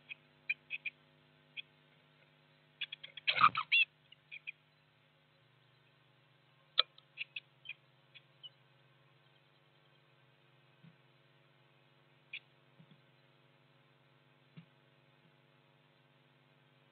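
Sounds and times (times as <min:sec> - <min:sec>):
blue tits chirping: 0:02.8 - 0:04.8, 0:06.7 - 0:08.6.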